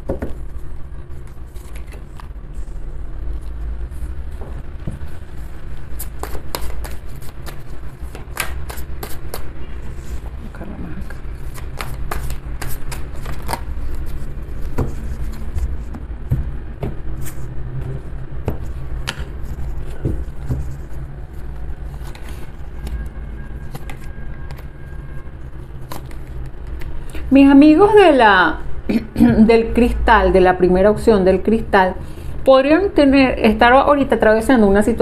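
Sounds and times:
cards being shuffled: 1.2 - 2.4, 5.0 - 10.3, 11.0 - 17.5, 18.4 - 24.7, 25.8 - 27.3.

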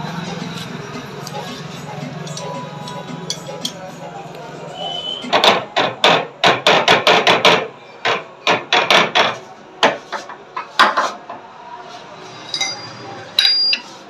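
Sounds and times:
metallic knocks on steel tubes: 1.0 - 4.0, 12.5 - 13.8
high metallic ring: 12.5 - 13.9.

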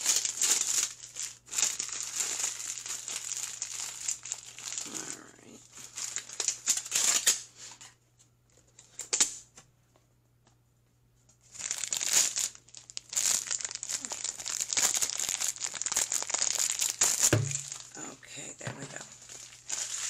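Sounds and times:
packaging crinkling and tearing: 0.0 - 7.5, 11.4 - 18.0, 18.8 - 20.0.

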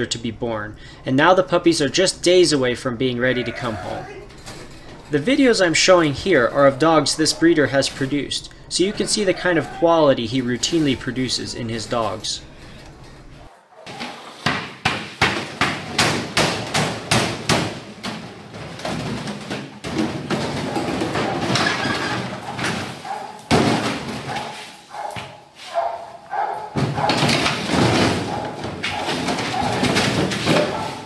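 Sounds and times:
plastic jugs and bin clattering: 13.9 - 24.6, 26.7 - 31.0.

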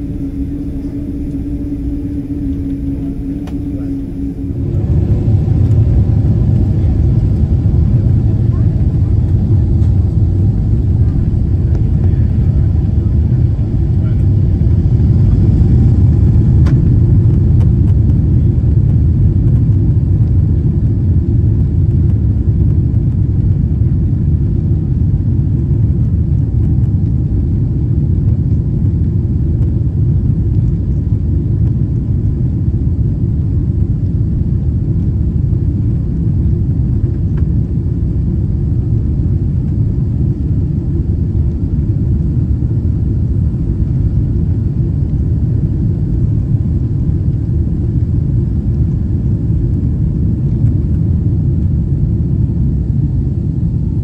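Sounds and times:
wheels rumbling on runway: 0.0 - 28.6
jet engines at power: 0.0 - 54.0.

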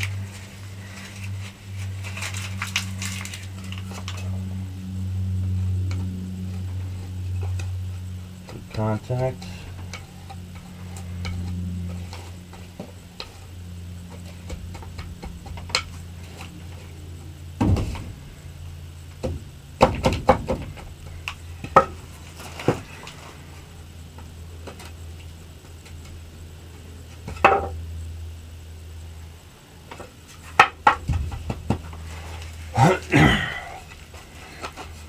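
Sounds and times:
steady low hum: 0.0 - 35.0
wooden board knocking on soil: 17.6 - 18.1, 19.2 - 20.9, 30.6 - 32.0.

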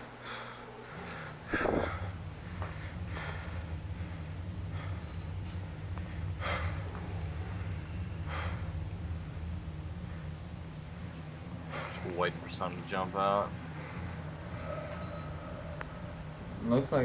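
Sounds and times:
steady low hum: 0.0 - 17.0
man breathing hard: 0.1 - 8.8.

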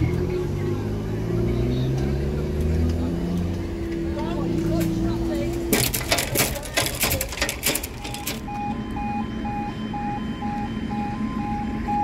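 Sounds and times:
level crossing alarm beeping: 5.9 - 12.0.

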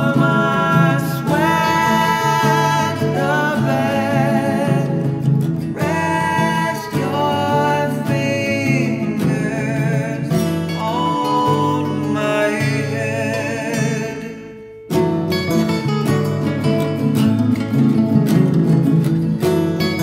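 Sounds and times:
folk-pop song with guitar: 0.0 - 20.0.

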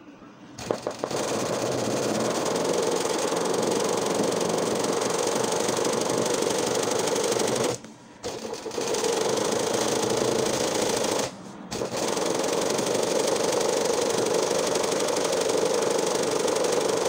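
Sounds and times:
sewing machine running fast: 0.6 - 17.0.

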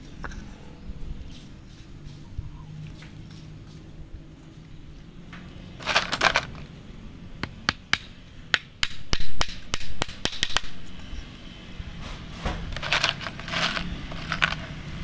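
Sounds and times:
nails clinking: 5.8 - 6.7, 12.7 - 15.0
hammer striking nail: 7.7 - 10.7.

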